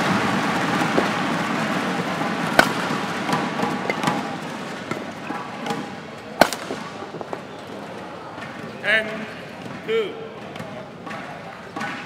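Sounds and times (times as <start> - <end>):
racket striking shuttlecock: 0.0 - 7.4, 10.4 - 12.0
sports hall hum: 0.0 - 12.0.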